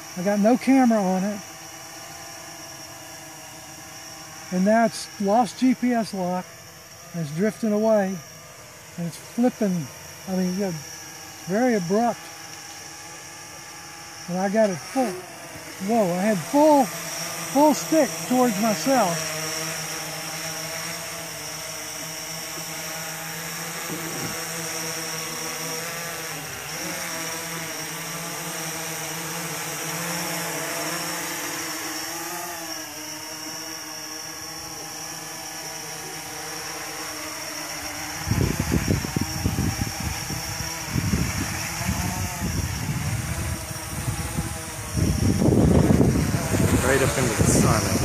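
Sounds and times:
quadcopter motors buzzing: 0.0 - 48.0
wind buffeting microphone: 38.2 - 48.0.

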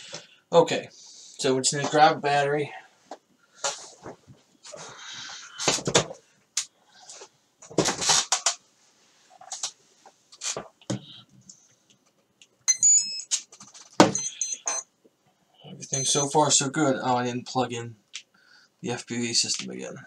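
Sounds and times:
short electronic beeps: 14.1 - 14.8, 15.8 - 16.4.

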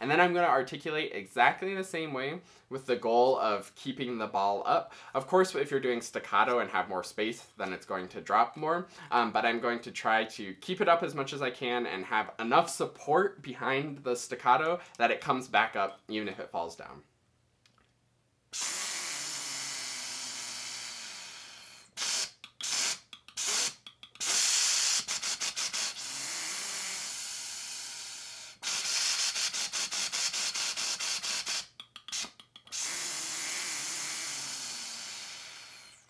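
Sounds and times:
short breath puffs: 4.9 - 5.2.

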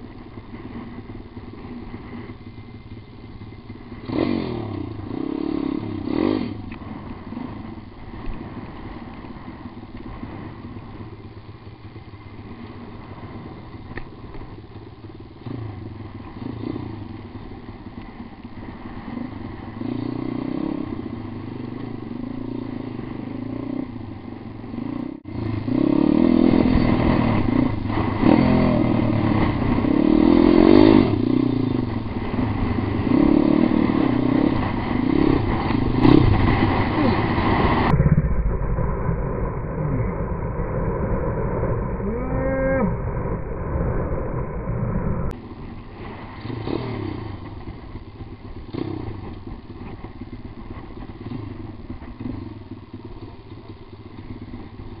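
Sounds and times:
motorbike engine revving: 1.4 - 7.8, 15.4 - 53.7.

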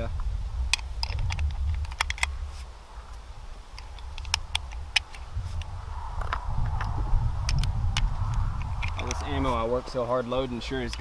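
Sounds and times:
wind buffeting microphone: 0.0 - 11.0
light mechanical clicks: 0.7 - 2.4.

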